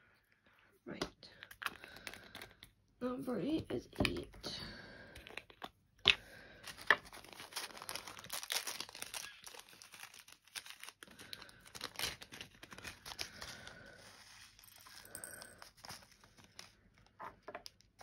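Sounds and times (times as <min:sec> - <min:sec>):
plastic bags crinkling: 0:06.3 - 0:16.8.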